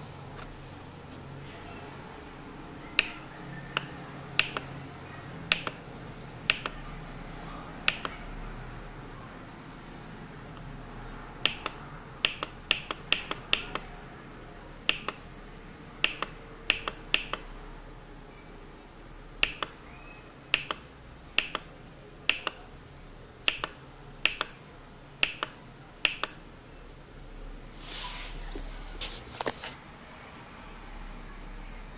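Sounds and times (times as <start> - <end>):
button clicks: 2.9 - 4.8, 5.5 - 5.8, 6.5 - 6.8, 7.9 - 8.2, 11.4 - 14.0, 14.9 - 15.3, 16.0 - 17.5, 19.4 - 19.8, 20.5 - 21.7, 25.2 - 26.4.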